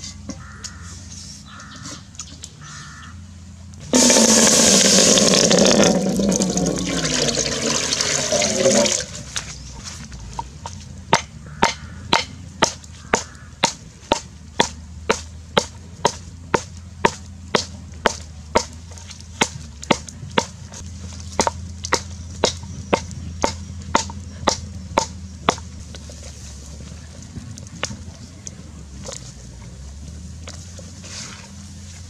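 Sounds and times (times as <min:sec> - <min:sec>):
stalks knocking on wooden block: 0:10.4 - 0:20.6, 0:21.4 - 0:25.7.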